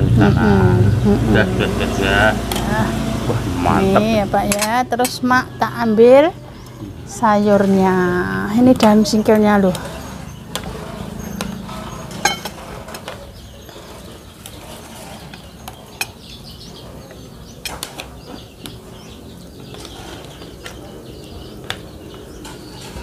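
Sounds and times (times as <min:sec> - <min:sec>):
low steady background noise: 0:00.0 - 0:23.0
metal spoon clinking on plates: 0:12.2 - 0:12.6.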